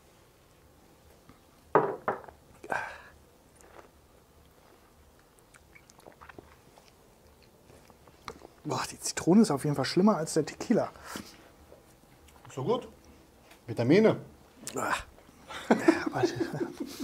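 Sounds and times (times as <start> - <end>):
glasses knocking on board: 1.8 - 2.4
lip smacks and sucking: 3.5 - 8.6.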